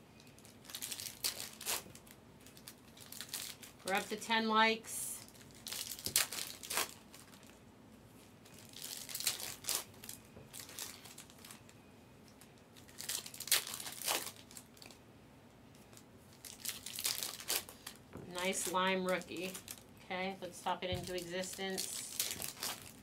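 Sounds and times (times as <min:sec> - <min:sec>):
wrappers crinkling: 0:00.2 - 0:07.6, 0:08.3 - 0:15.0, 0:15.7 - 0:23.0
foil packs tearing: 0:00.6 - 0:04.0, 0:05.3 - 0:07.4, 0:08.6 - 0:11.6, 0:12.9 - 0:14.9, 0:16.4 - 0:19.8, 0:21.1 - 0:23.0.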